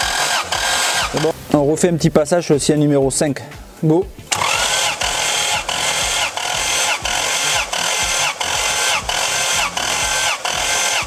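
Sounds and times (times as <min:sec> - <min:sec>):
starter motor cranking engine: 0:00.0 - 0:01.5, 0:04.3 - 0:11.0.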